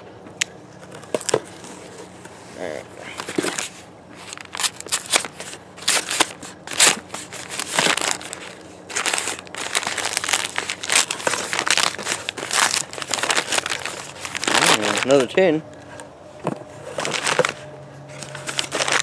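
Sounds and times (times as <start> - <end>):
envelope tearing and crumpling: 3.2 - 15.4, 16.9 - 19.0.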